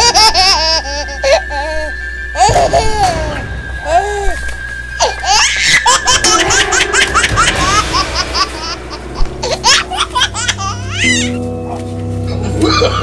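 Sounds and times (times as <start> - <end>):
high giggling laughter: 12.3 - 13.0.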